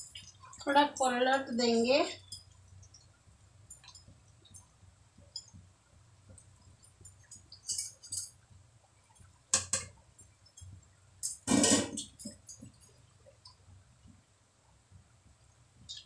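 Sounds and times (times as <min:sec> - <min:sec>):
metal spatula clinking on pan: 0:07.2 - 0:08.4.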